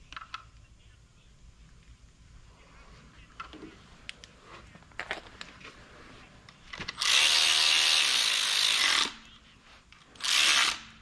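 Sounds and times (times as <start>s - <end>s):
electric ratchet motor whir: 7.0s - 9.1s, 10.2s - 10.9s.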